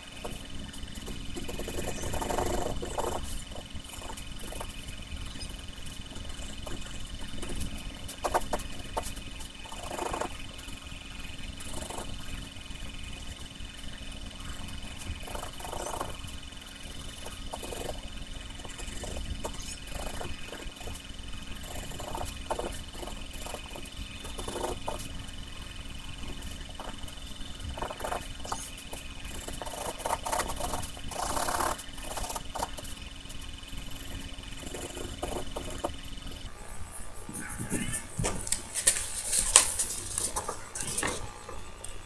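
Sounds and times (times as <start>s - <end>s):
high whine: 0.0s - 42.0s
low hum: 0.0s - 42.0s
pencil scratching on paper: 27.7s - 33.0s.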